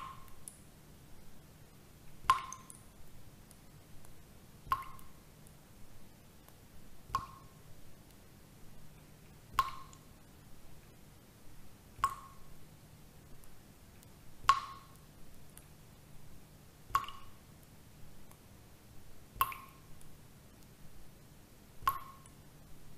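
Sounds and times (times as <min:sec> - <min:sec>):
water drops plinking: 0:02.3 - 0:02.8, 0:04.7 - 0:05.1, 0:07.2 - 0:07.5, 0:09.6 - 0:10.0, 0:12.0 - 0:12.5, 0:14.5 - 0:15.0, 0:17.0 - 0:17.4, 0:19.4 - 0:19.9, 0:21.9 - 0:22.4.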